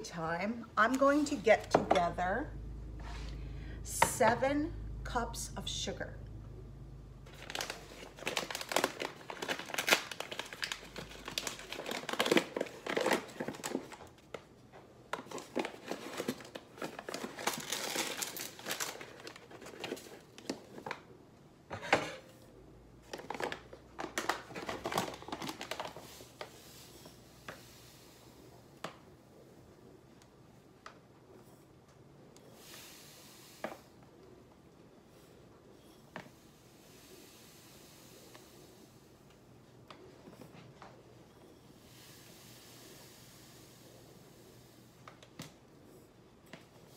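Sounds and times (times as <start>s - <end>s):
paper bag crinkling: 7.3s - 14.1s, 15.3s - 20.9s, 23.1s - 26.2s.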